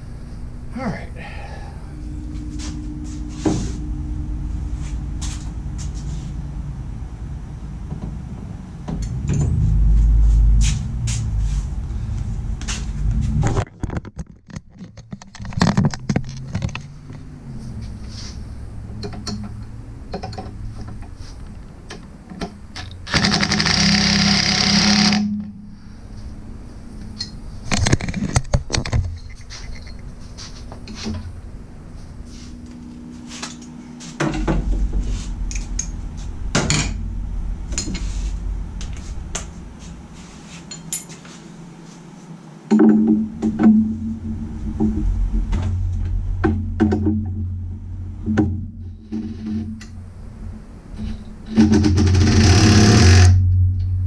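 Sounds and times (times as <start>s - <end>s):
clanks of tools and metal parts: 8.9s - 9.7s, 19.0s - 23.6s, 27.0s - 31.3s, 36.6s - 37.0s, 37.7s - 38.2s, 40.6s - 41.3s
impact wrench hammering: 23.0s - 25.3s.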